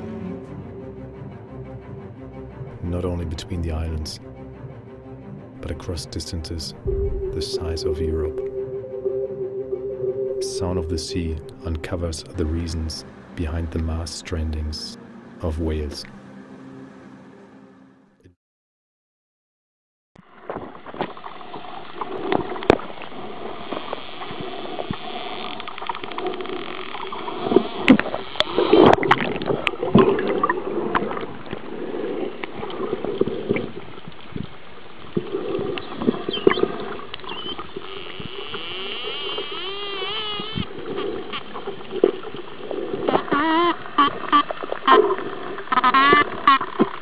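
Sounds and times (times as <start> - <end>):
underwater rush: 5.6 - 16.2, 20.4 - 38.5, 39.6 - 47.0
dolphin whistles: 35.8 - 40.7, 43.3 - 45.0, 45.7 - 46.7.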